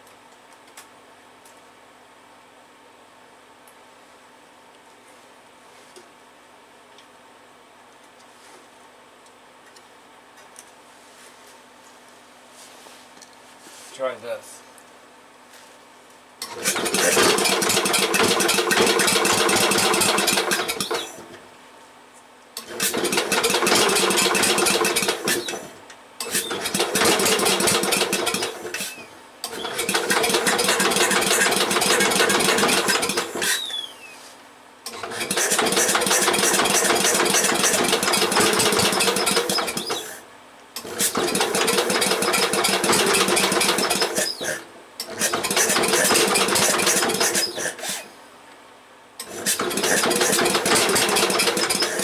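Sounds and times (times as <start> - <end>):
engine cranking over: 16.4 - 21.4, 22.6 - 33.8, 34.9 - 40.2, 40.8 - 48.1, 49.2 - 52.0.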